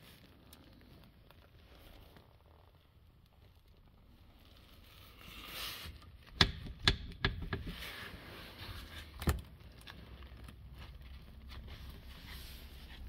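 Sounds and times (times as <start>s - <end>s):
sharp knocks and clicks: 6.2s - 7.8s
faint rustling: 7.7s - 13.0s.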